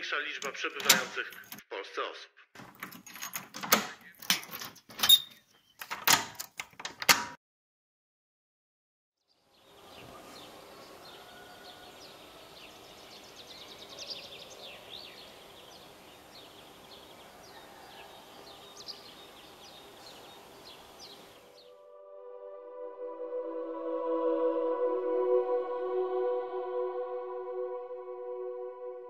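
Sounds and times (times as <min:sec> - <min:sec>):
birds chirping: 0:09.3 - 0:21.7
steady background hiss: 0:09.6 - 0:21.5.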